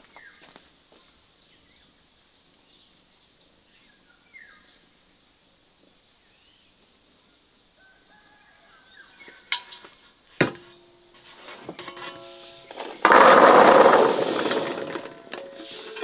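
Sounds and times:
dishes and utensils clattering: 11.4 - 16.0.

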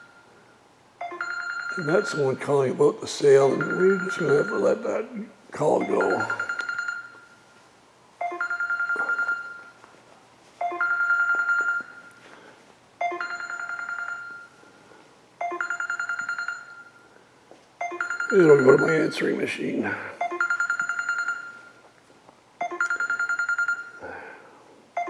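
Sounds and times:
telephone trilling ring: 1.0 - 2.4, 3.2 - 5.0, 5.8 - 7.4, 8.2 - 9.8, 10.6 - 12.2, 13.0 - 14.6, 15.4 - 17.1, 17.8 - 19.4, 20.2 - 21.8, 22.6 - 24.1.

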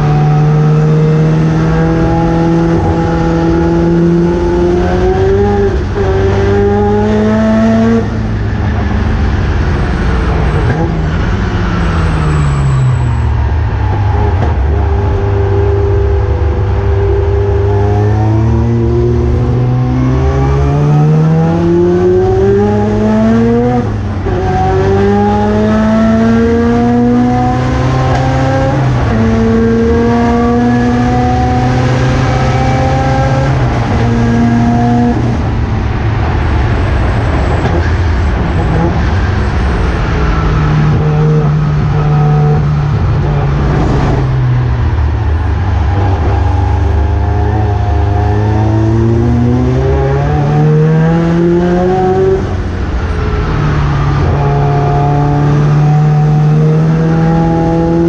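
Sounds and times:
race car rotary engine revving: 0.0 - 58.0.

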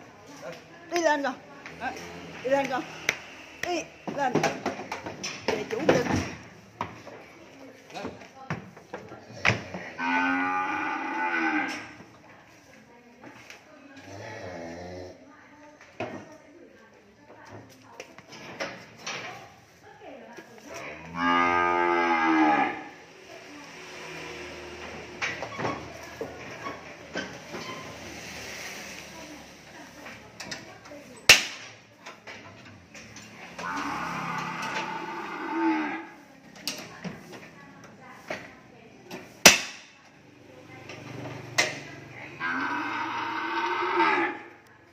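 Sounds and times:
cow mooing: 9.9 - 12.0, 20.9 - 23.0, 33.6 - 36.2, 42.4 - 44.5.

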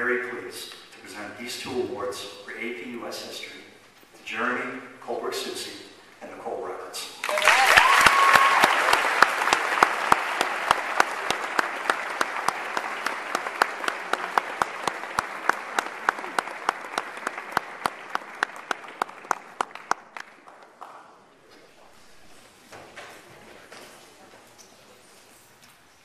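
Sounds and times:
audience applauding: 7.2 - 21.3
person clapping steadily: 7.3 - 21.0.

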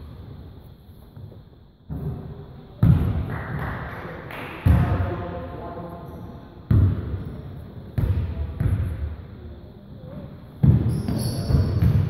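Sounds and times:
basketball bouncing: 10.6 - 12.0.

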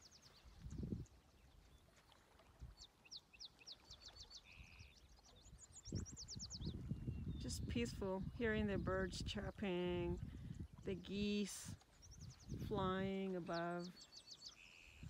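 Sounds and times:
songbirds trilling: 2.7 - 9.2, 10.6 - 15.0.

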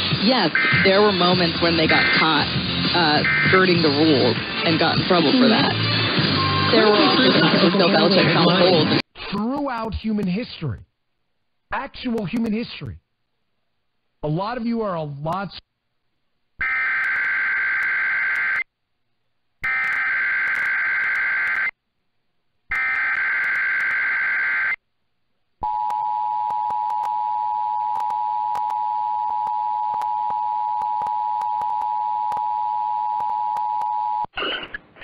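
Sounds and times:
harsh warbling data bursts: 0.2 - 9.0.

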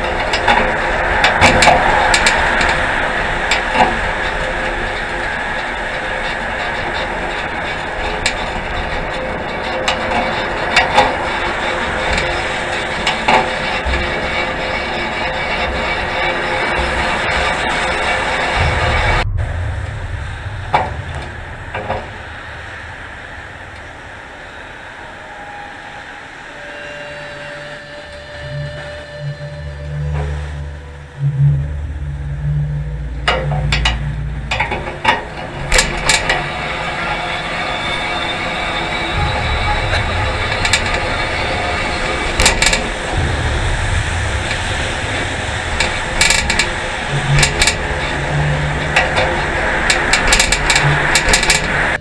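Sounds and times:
bicycle creaking and clicking: 0.0 - 19.3, 20.5 - 52.0
steady hiss: 0.0 - 52.0
steady low drone: 0.0 - 52.0
steady rushing noise: 0.0 - 52.0.

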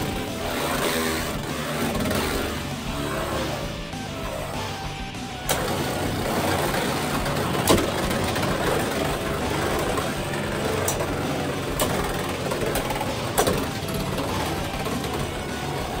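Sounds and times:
spinning tops whirring: 0.0 - 16.0
spinning tops clacking together: 5.3 - 16.0.

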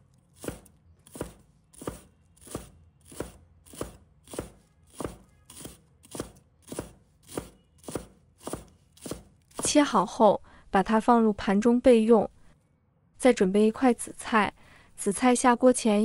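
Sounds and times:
cleaver chopping on wooden board: 0.4 - 9.7.

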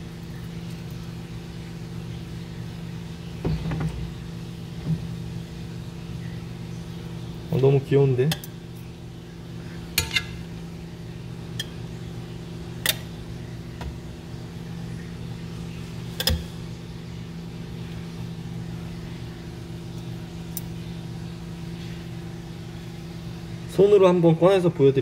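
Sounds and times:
low mechanical hum: 0.0 - 25.0.

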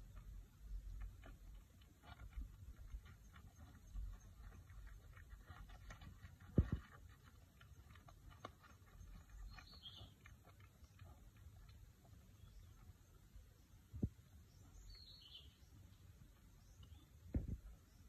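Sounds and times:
small ticks: 0.0 - 13.2.

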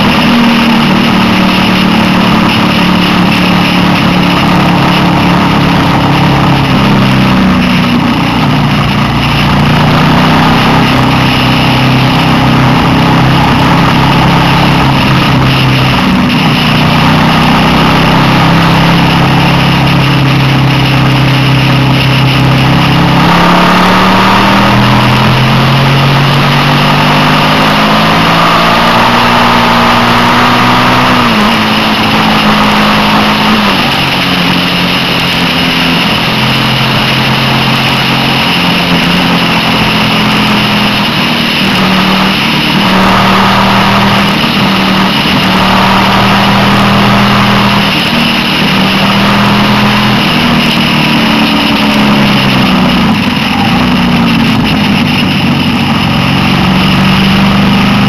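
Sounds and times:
motorcycle engine revving: 0.0 - 58.0
wind and road rush: 0.0 - 58.0.

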